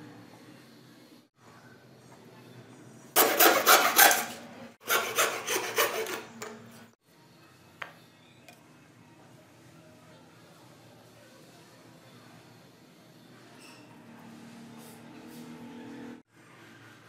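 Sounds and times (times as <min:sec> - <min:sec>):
tool rasping wood: 0:03.2 - 0:06.3.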